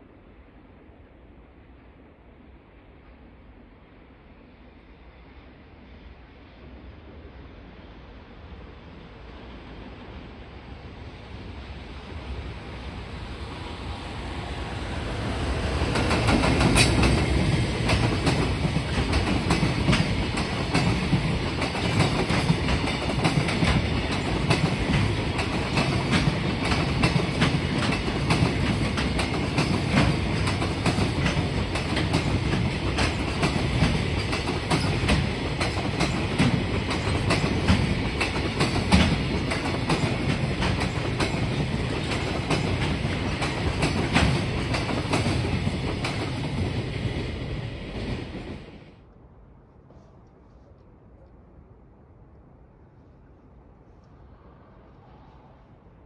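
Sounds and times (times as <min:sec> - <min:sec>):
train rumbling: 0:00.0 - 0:56.0
train wheels clacking over joints: 0:15.9 - 0:46.8.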